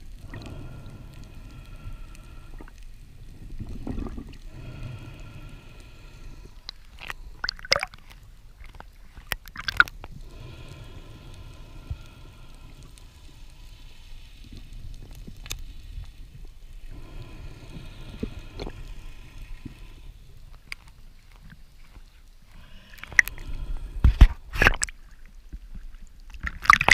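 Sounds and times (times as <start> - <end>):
low water rumble: 0.0 - 26.9
sharp clicks and knocks underwater: 2.5 - 4.5, 6.5 - 10.2, 22.9 - 26.9.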